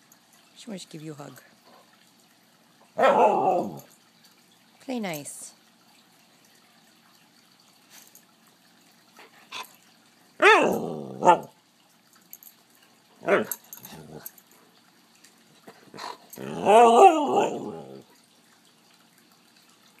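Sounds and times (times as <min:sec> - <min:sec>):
dog howling vocal calls: 0:03.0 - 0:03.9, 0:10.4 - 0:11.5, 0:16.4 - 0:18.0.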